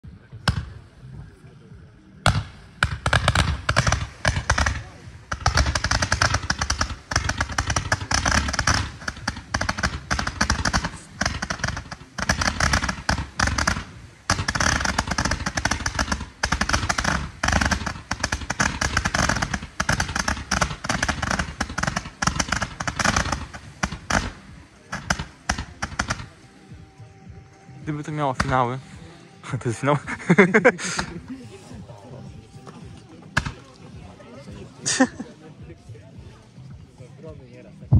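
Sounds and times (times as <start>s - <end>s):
roman candle firing rapid pops: 2.3s - 27.0s, 27.6s - 28.9s, 29.7s - 31.2s, 33.4s - 33.8s.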